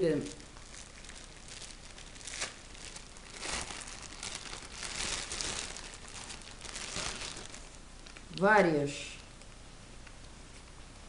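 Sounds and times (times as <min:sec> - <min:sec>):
plastic bag crinkling: 0:00.0 - 0:08.4.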